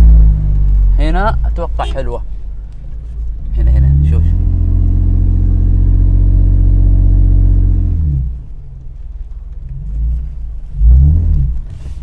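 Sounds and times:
vehicle engine pulling hard: 0.0s - 12.0s.

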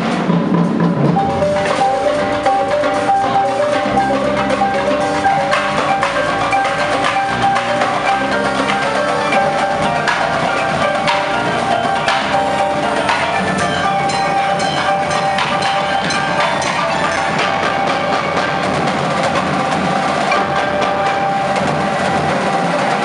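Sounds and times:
marching drums: 0.0s - 23.0s
marimbas playing melody: 0.0s - 23.0s.

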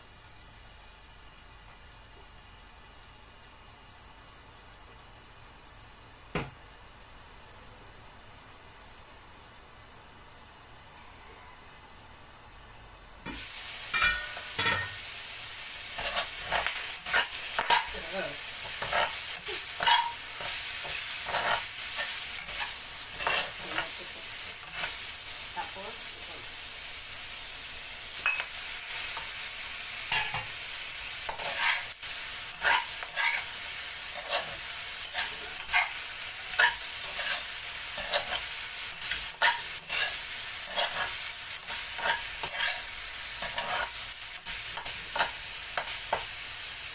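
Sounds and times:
food sizzling in hot oil: 0.0s - 46.9s
metal spatula scraping wok: 13.3s - 15.0s, 15.8s - 25.0s, 30.0s - 30.6s, 31.2s - 46.2s.

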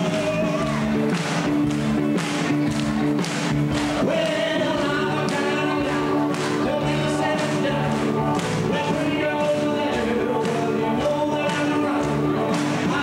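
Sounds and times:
man singing into a microphone: 3.9s - 13.0s.

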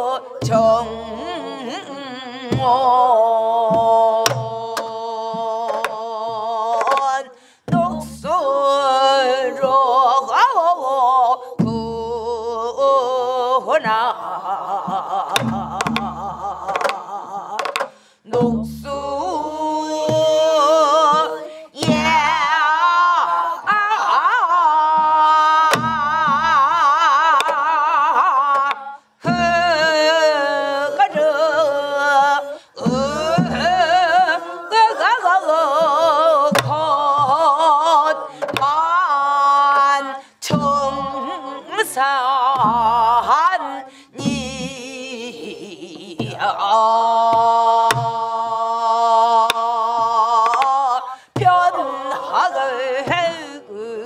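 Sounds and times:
group singing folk song: 0.0s - 54.0s
stick strokes on barrel drum: 6.8s - 7.9s, 38.3s - 38.8s.

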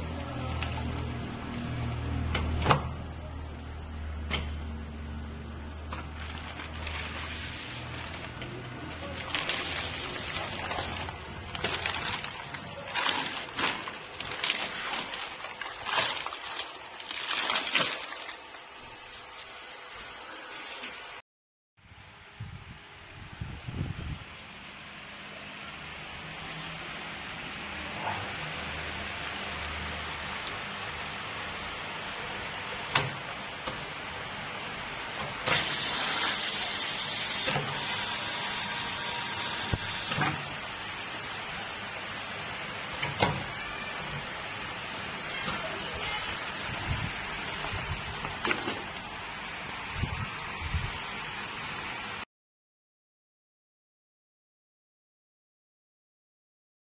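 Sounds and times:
water sloshing in bag: 5.9s - 19.6s
plastic film crinkling: 6.1s - 17.7s.

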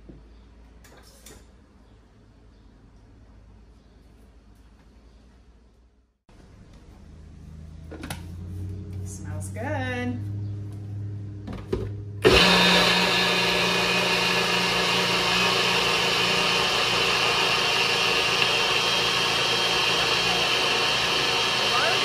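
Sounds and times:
blender motor running: 12.2s - 22.0s.

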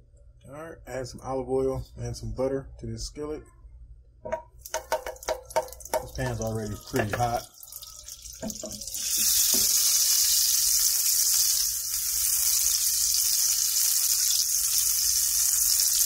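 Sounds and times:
oil and butter sizzling: 4.6s - 16.0s.

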